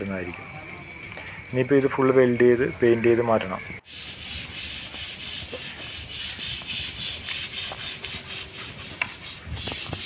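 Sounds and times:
sandpaper scraping steel plate: 0:03.8 - 0:10.0.

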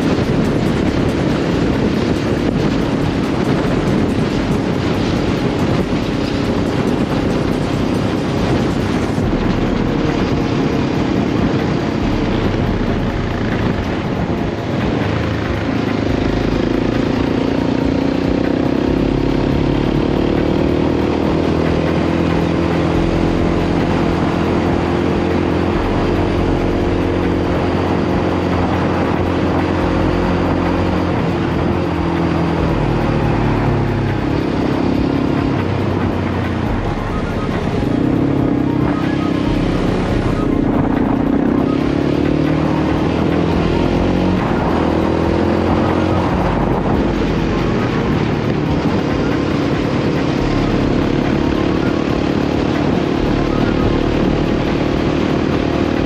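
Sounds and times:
quad bike engine running: 0:00.0 - 0:56.0.

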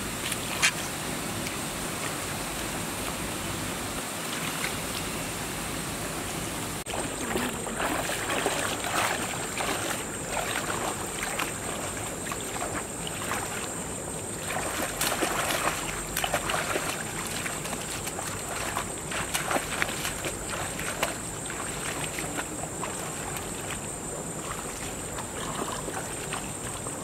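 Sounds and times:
rushing river water: 0:00.0 - 0:27.0
legs sloshing through water: 0:06.8 - 0:27.0.

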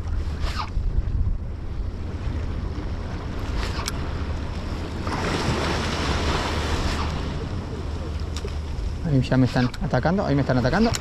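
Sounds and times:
wind rumble on microphone: 0:00.0 - 0:11.0
sea surf washing in: 0:02.3 - 0:11.0.

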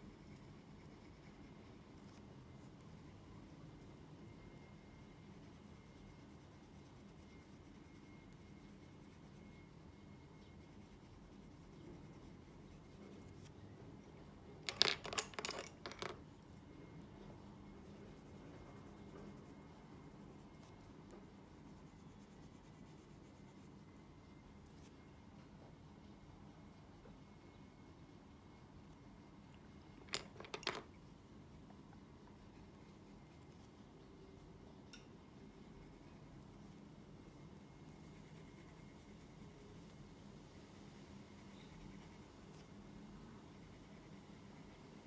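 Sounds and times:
pencil scratching on paper: 0:00.0 - 0:03.8.

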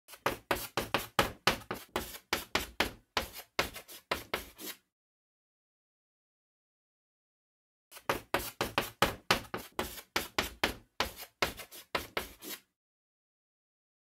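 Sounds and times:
chalk tapping on a blackboard: 0:00.1 - 0:04.8, 0:08.0 - 0:12.7.

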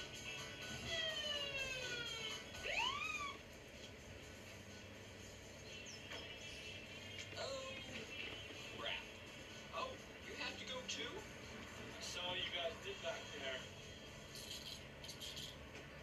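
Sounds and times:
police siren through speakers: 0:00.6 - 0:03.5.

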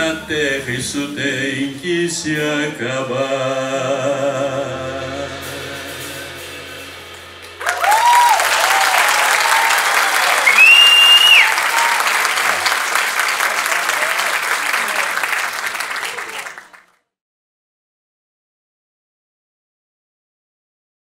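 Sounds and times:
band chord: 0:00.0 - 0:10.5
audience applause: 0:07.4 - 0:16.9
shouted cheers: 0:07.6 - 0:16.8
long high whistle: 0:07.7 - 0:12.2.

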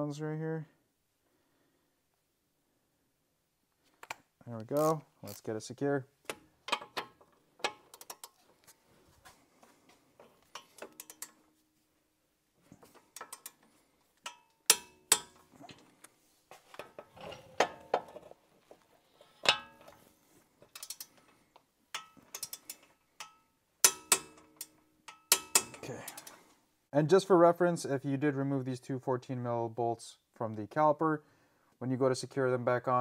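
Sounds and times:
torque wrench clicking: 0:10.5 - 0:11.4, 0:20.7 - 0:21.1, 0:22.0 - 0:26.4.

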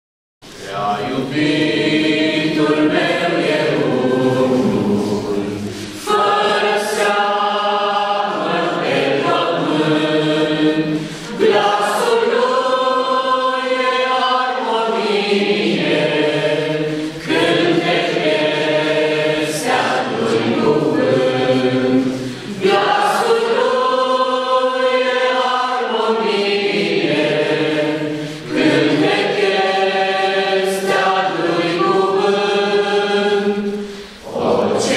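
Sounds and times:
choir singing a hymn: 0:00.4 - 0:34.9.

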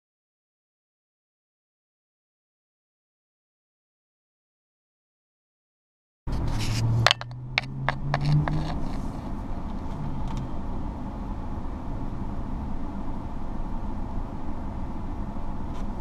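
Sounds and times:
vehicle engine idling: 0:06.3 - 0:16.0.

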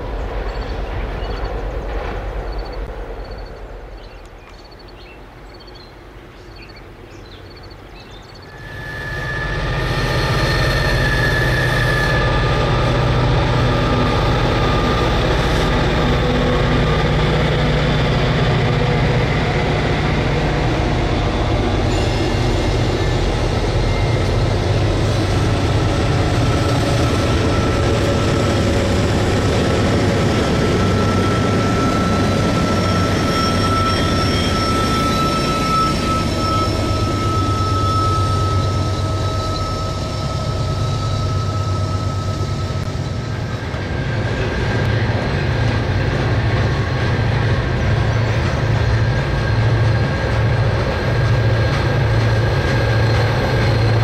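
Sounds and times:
diesel locomotive engine rumble: 0:00.0 - 0:54.0
thin steady squeal: 0:08.4 - 0:13.1, 0:29.8 - 0:44.5.

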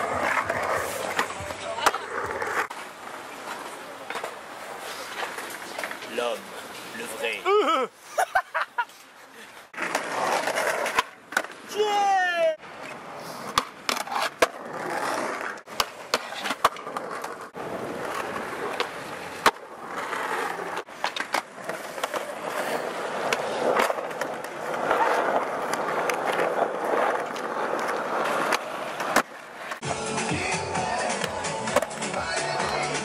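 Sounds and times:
skateboard wheels rolling on concrete: 0:00.0 - 0:33.0
skateboards clacking on landing: 0:15.3 - 0:20.1, 0:20.7 - 0:29.8.

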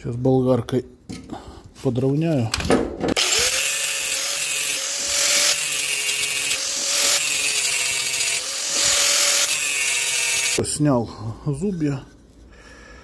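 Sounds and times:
angle grinder grinding metal: 0:03.2 - 0:10.6.

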